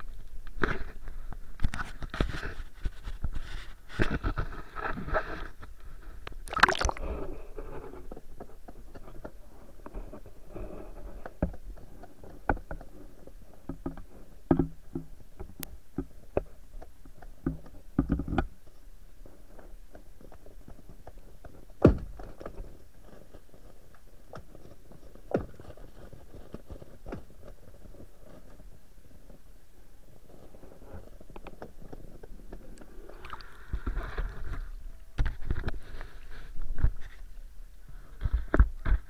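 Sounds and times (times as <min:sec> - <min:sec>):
muffled underwater knocks and clicks: 0:11.2 - 0:18.5.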